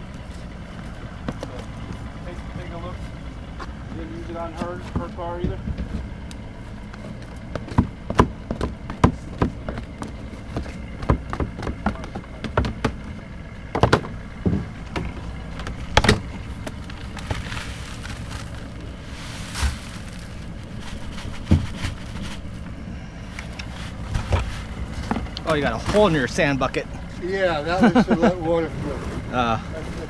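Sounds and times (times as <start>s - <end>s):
buckets knocking on boat deck: 7.6s - 13.1s.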